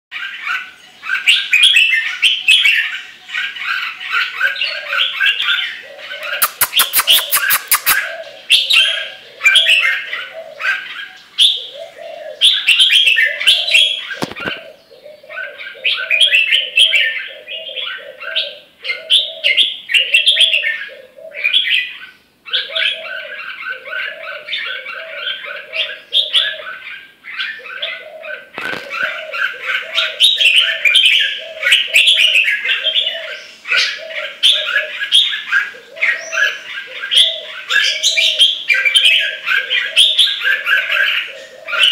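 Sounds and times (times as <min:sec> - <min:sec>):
bird singing bubbly phrases: 0:04.3 - 0:15.2.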